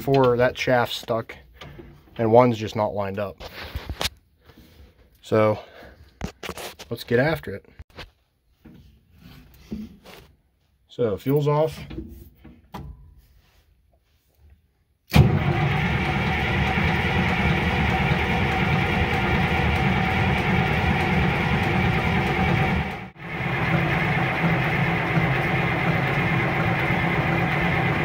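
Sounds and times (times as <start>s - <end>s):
diesel engine cranking without firing: 15.1s - 28.0s.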